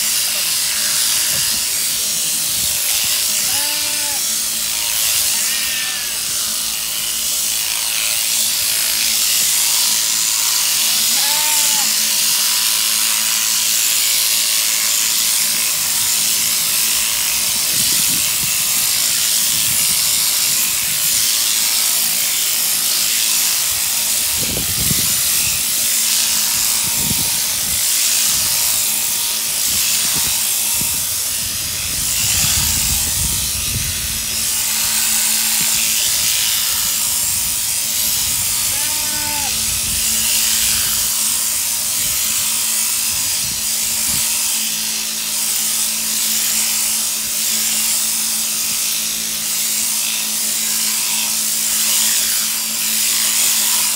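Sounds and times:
sheep shears buzzing: 0.0s - 53.9s.

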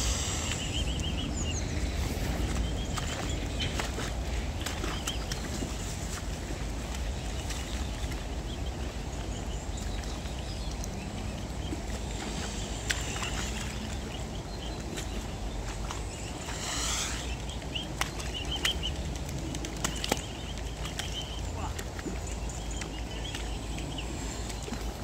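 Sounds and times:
cygnets high peeping calls: 0.0s - 4.1s, 7.2s - 19.1s
low background rumble: 0.0s - 25.0s.

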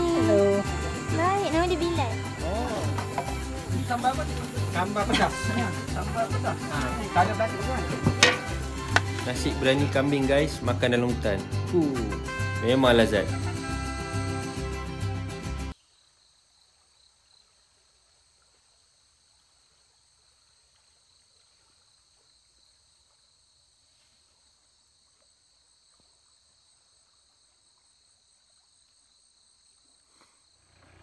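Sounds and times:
high-pitched insect chorus: 0.0s - 9.6s.

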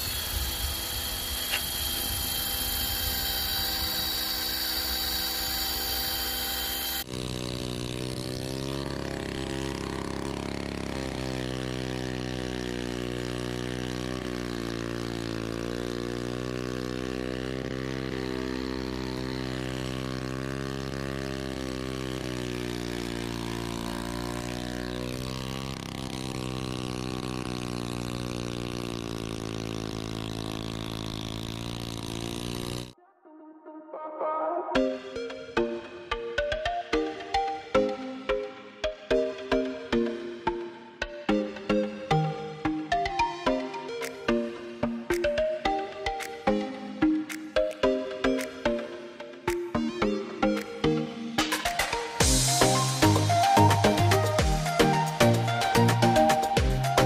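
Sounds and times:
machine with high whining tones: 0.0s - 33.0s, 49.7s - 57.0s
small petrol engine running: 0.0s - 33.0s, 34.8s - 57.0s.

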